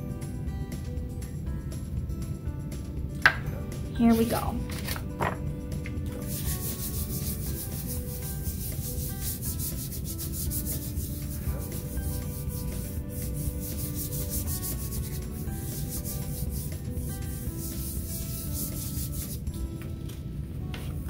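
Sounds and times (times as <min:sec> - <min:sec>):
hand rubbing paper: 0:06.2 - 0:19.4.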